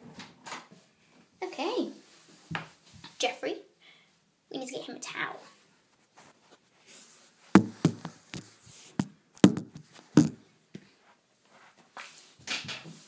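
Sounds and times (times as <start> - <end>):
phone knocking against cloth: 7.6 - 8.2, 9.4 - 10.4.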